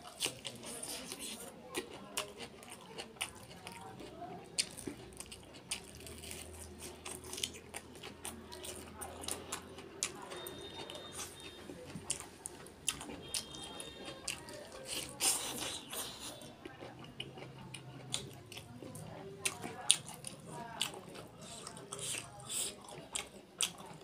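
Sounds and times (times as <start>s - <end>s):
person chewing and crunching: 0.0s - 24.0s.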